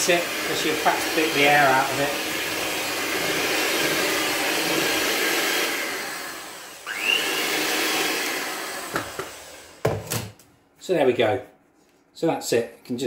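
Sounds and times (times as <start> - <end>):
electric hand mixer whirring: 0.0 - 10.0.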